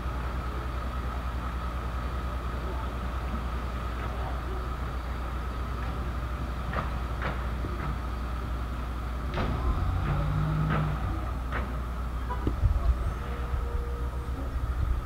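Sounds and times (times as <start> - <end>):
steady low rumble: 8.8 - 15.0
brief low hum: 12.2 - 15.0.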